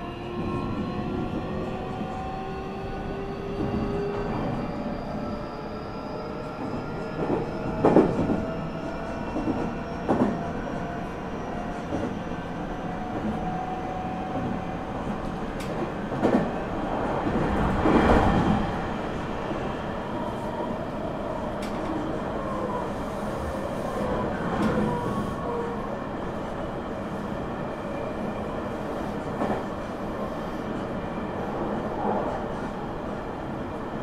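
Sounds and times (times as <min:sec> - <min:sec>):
train wheels rumbling on rail: 0:00.1 - 0:34.0
train knocks and rattle: 0:06.6 - 0:08.5, 0:09.3 - 0:10.4, 0:14.3 - 0:18.6.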